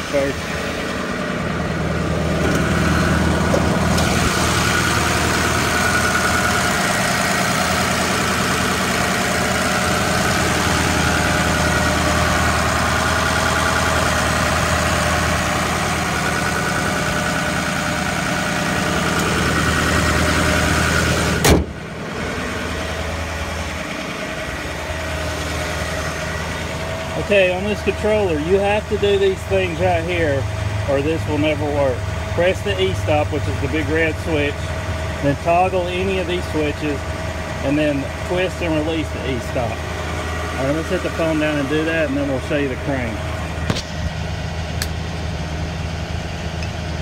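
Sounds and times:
diesel engine idling: 0.0 - 47.0
hood slamming shut: 21.3 - 21.9, 43.6 - 44.0.

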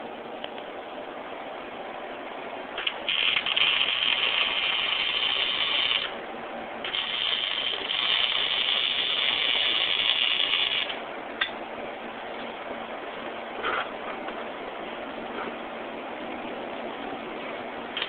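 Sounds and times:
electric arc welding crackle: 2.8 - 6.2, 6.8 - 11.0.

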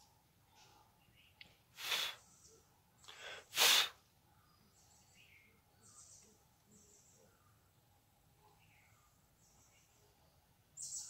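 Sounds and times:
person sniffing: 1.8 - 2.2, 3.1 - 4.0.

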